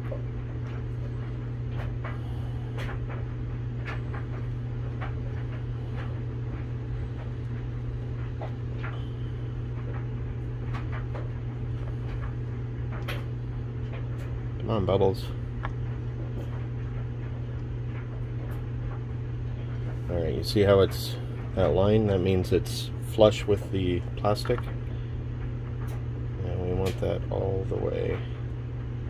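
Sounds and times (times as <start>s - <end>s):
low hum: 0.0s - 29.0s.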